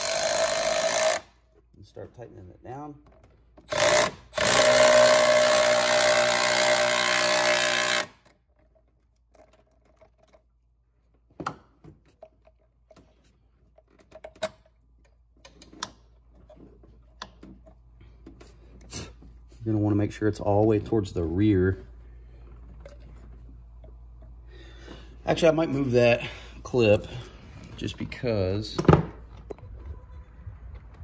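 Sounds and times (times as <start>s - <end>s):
power tool motor whine: 0.0s - 1.3s, 3.7s - 8.2s.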